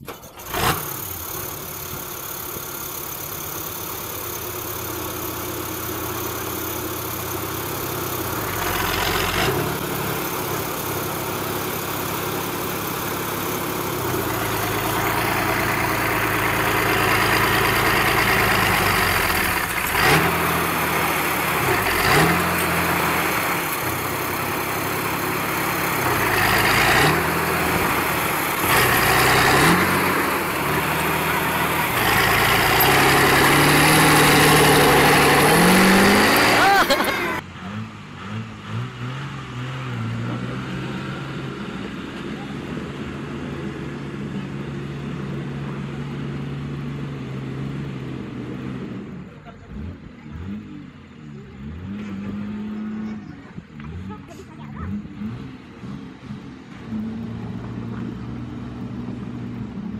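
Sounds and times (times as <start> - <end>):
tractor diesel engine revving: 0.0 - 59.9.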